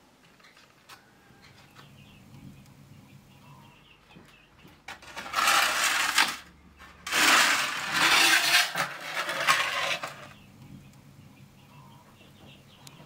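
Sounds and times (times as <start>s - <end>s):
metal tray scraping oven floor: 4.9s - 10.4s.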